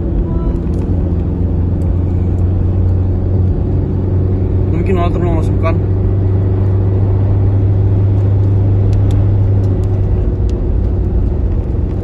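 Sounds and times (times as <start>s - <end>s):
low hum: 0.0s - 4.8s
car road and engine noise: 0.0s - 12.0s.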